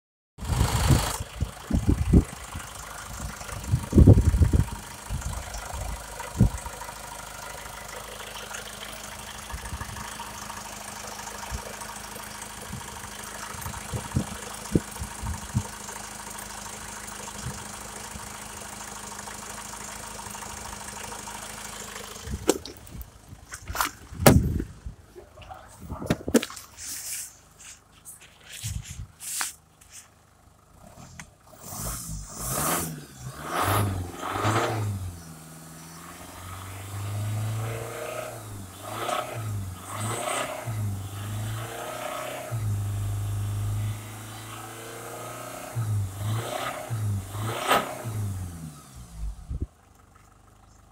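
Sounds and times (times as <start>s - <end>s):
diesel engine idling: 0.4s - 50.9s
low bumps: 22.2s - 31.4s
knocks and thuds: 23.6s - 24.7s.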